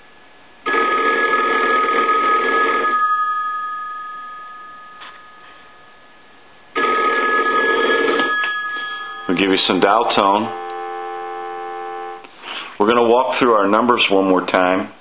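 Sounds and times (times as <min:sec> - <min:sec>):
telephone bell ringing: 0:00.7 - 0:06.0, 0:06.8 - 0:12.2.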